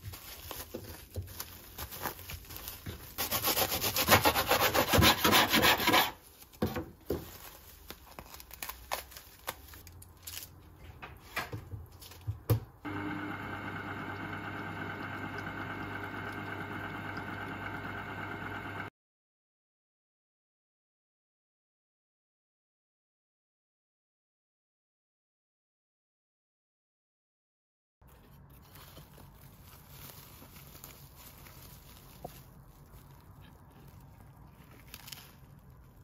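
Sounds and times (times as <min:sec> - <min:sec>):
cling film crinkling: 0:00.0 - 0:03.2, 0:06.2 - 0:10.6, 0:28.0 - 0:36.0
knife sawing through sandwich: 0:03.2 - 0:06.2.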